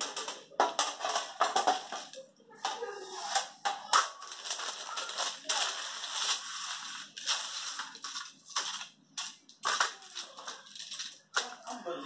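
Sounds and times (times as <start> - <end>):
baking parchment rustling: 0.0 - 11.9.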